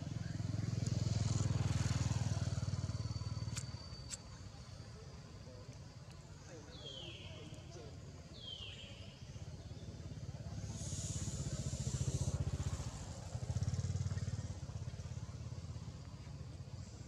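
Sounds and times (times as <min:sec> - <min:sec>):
vehicle engine rumbling: 0:00.0 - 0:17.0.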